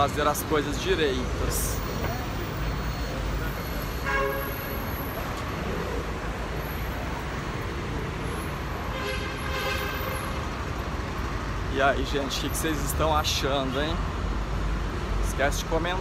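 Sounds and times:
city street traffic: 0:00.0 - 0:16.0
vehicle horn: 0:03.9 - 0:04.8, 0:08.8 - 0:10.4.

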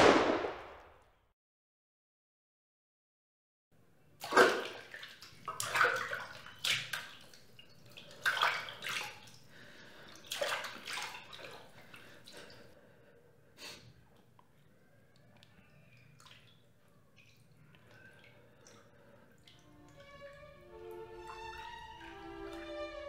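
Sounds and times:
water splashing in bathtub: 0:04.2 - 0:12.7, 0:14.1 - 0:23.0.

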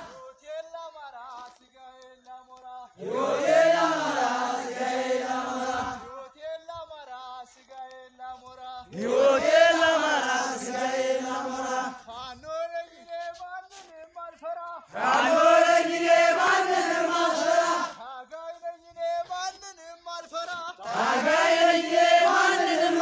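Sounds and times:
men chanting in unison: 0:00.0 - 0:00.4, 0:02.7 - 0:06.4, 0:08.4 - 0:12.4, 0:14.8 - 0:18.3, 0:20.7 - 0:23.0.

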